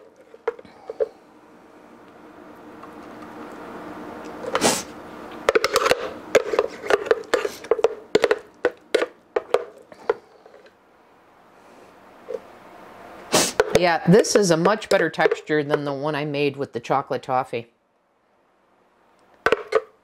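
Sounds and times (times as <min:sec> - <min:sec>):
spatula scraping plastic jar: 0:05.6 - 0:08.4.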